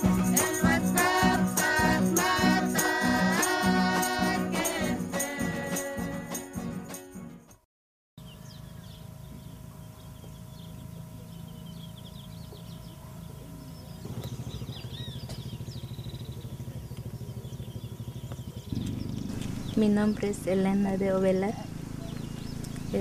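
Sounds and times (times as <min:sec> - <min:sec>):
music: 0:00.0 - 0:07.6
birds chirping: 0:08.2 - 0:23.0
steady low drone: 0:08.6 - 0:23.0
fast pulsing motor: 0:10.8 - 0:23.0.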